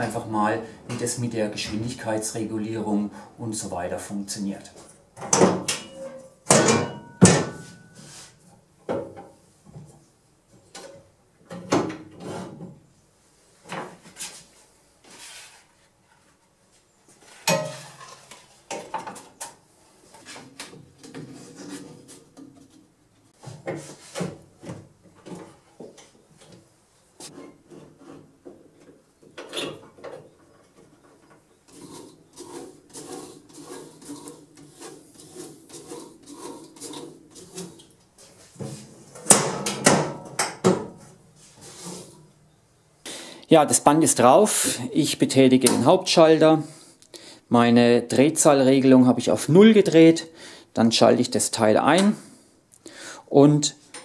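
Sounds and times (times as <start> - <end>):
clunks and knocks on metal: 5.2 - 7.9, 17.4 - 18.1, 38.6 - 41.0
metal cover opening: 17.4 - 19.3.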